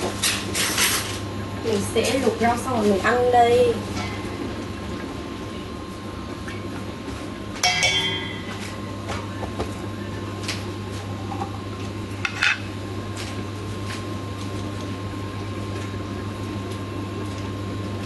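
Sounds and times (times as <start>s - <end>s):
steady low hum: 0.0s - 18.0s
dishes and utensils clinking: 7.6s - 8.9s.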